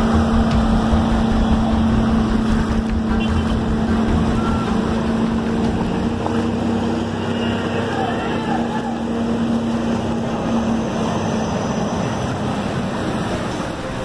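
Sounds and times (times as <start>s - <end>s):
wind buffeting microphone: 0.0s - 7.3s
engine hum: 0.0s - 14.0s
rushing water wash: 0.0s - 14.0s.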